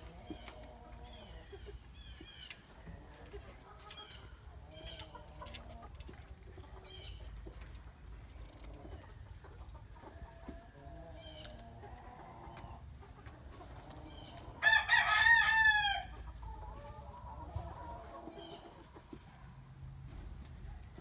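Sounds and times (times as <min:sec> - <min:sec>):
soft bird calls: 0:00.1 - 0:02.9, 0:06.5 - 0:09.2.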